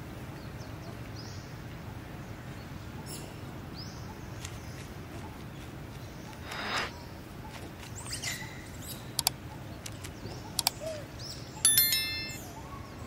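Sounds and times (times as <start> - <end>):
rustle: 0.0 - 12.6
faint outdoor ambience: 0.0 - 13.0
high chirps: 6.3 - 6.9, 11.6 - 12.6
mouse clicks: 9.2 - 10.0, 10.6 - 10.8
bright stepped chime: 11.6 - 12.6.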